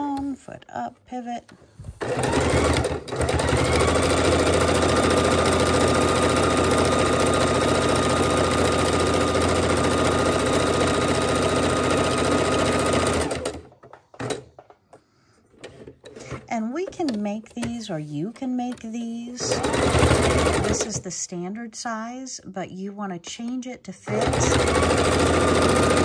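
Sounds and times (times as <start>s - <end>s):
sewing machine stitching: 2.0s - 14.5s, 18.7s - 21.0s, 24.1s - 26.0s.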